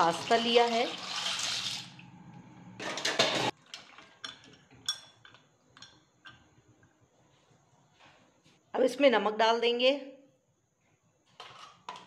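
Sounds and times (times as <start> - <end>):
dry pasta poured into water: 0.0 - 2.1.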